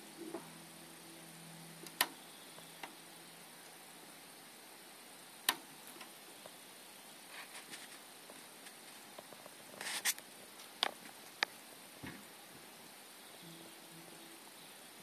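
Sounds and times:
soft ticks: 5.4 - 6.6.

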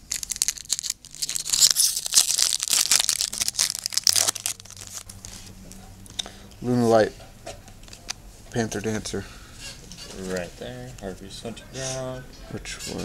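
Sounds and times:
foil wrapper tearing and crinkling: 0.0 - 5.3.

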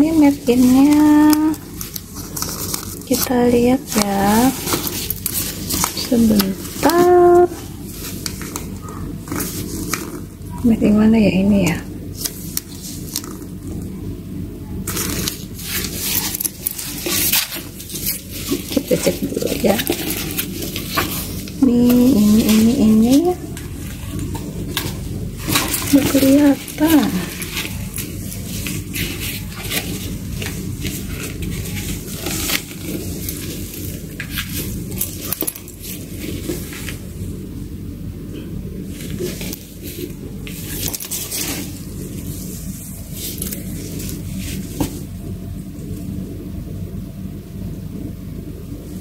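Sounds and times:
fabric bag rustling: 0.0 - 10.9, 12.1 - 13.8, 14.8 - 37.4, 38.8 - 45.2.

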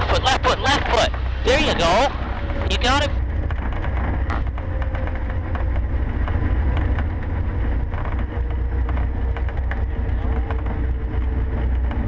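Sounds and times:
airplane engine droning: 0.0 - 12.0.

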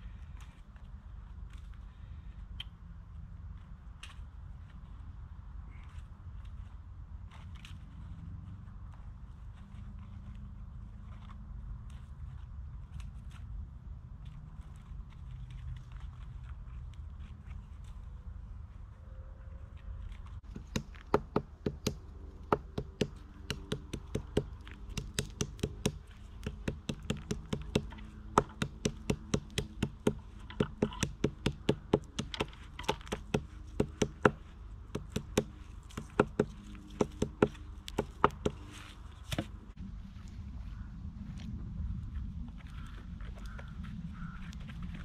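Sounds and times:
sharp knocks: 20.5 - 38.6.

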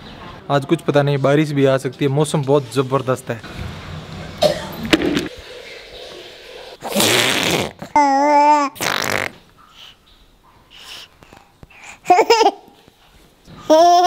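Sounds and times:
baby cooing and laughing: 7.8 - 9.2, 11.4 - 12.8, 13.6 - 14.0.

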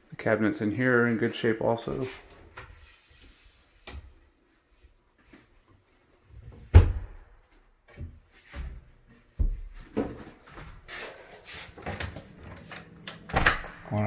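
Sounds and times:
rustling and shuffling: 1.7 - 6.7, 7.4 - 13.0.

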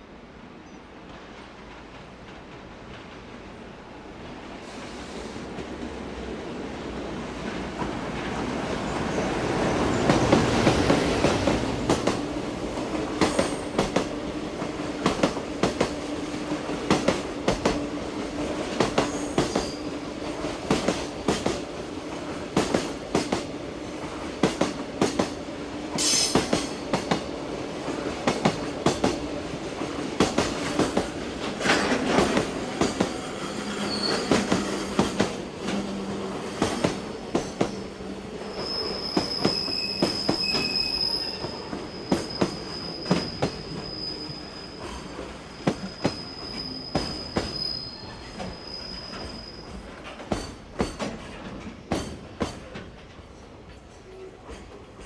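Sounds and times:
train wheels clacking on rails: 9.0 - 44.0, 44.8 - 47.7, 48.3 - 55.0
high wheel squeal: 33.2 - 35.0, 38.4 - 50.0.

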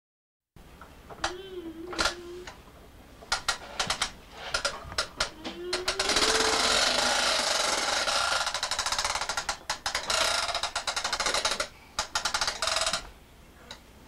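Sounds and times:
plastic ride-on toy rattling clicks: 3.3 - 13.1.

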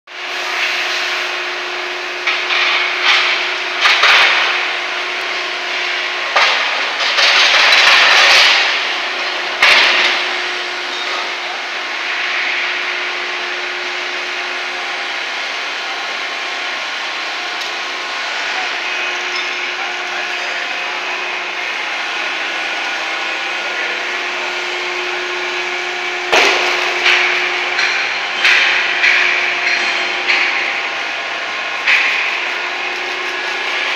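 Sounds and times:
machinery humming: 0.1 - 33.9
metal clanks: 26.3 - 33.9.

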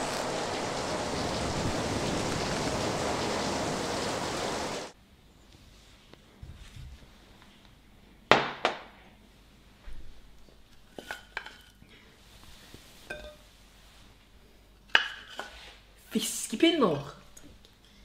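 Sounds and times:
plates clinking: 13.1 - 13.4.

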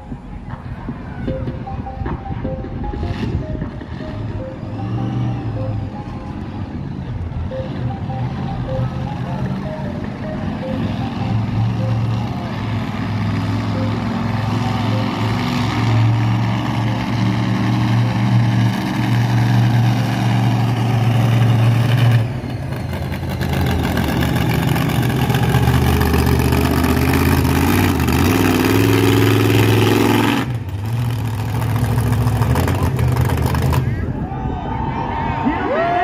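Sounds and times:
monster truck engine revving: 3.1 - 34.2.

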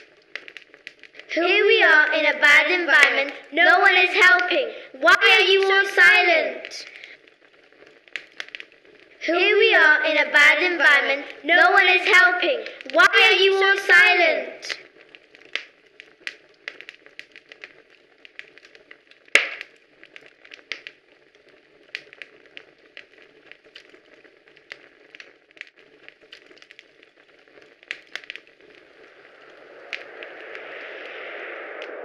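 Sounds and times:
steady rushing noise: 0.0 - 17.8, 27.1 - 32.0
crackling clicks: 0.0 - 32.0
faint hiss: 0.0 - 32.0
loud snap: 19.3 - 19.8.

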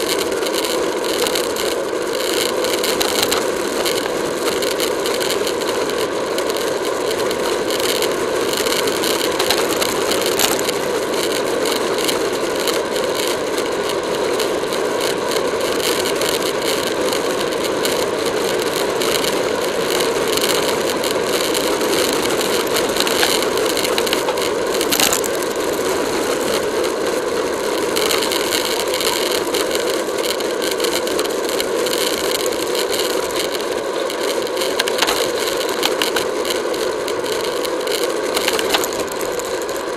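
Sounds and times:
road vibration: 0.0 - 39.9
sharp clicks: 31.9 - 39.8.

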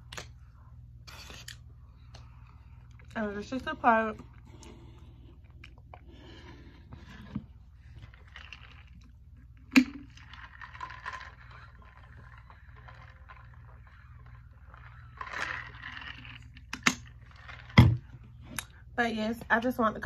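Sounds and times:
faint steady hum: 0.0 - 20.0
person drinking: 4.2 - 9.1.

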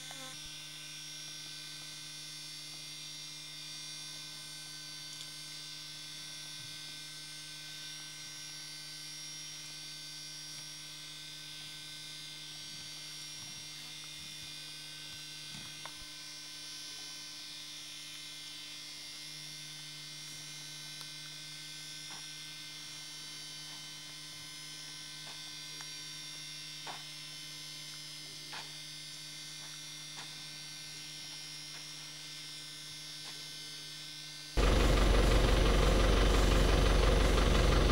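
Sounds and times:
steady electrical hum: 0.0 - 37.9
loud vehicle engine: 34.6 - 37.9.

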